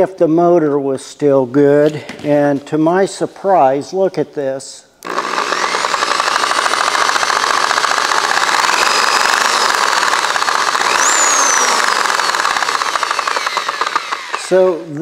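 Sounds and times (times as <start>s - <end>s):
reciprocating saw motor whirring: 5.0s - 14.9s.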